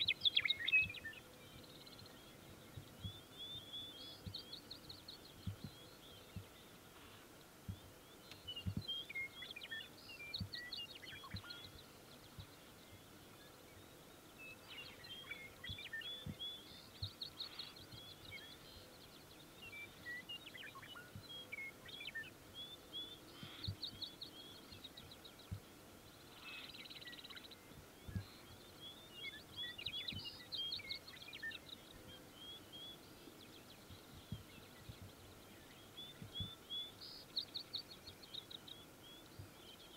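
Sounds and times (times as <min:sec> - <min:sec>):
songbirds trilling and chirping: 0:00.0 - 0:39.9
low thumps on microphone: 0:05.4 - 0:06.6, 0:08.6 - 0:08.9.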